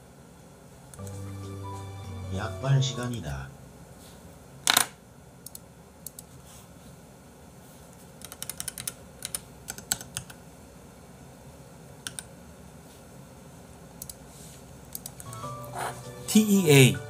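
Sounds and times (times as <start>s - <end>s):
typing on computer keyboard: 8.2s - 10.4s, 12.0s - 12.3s.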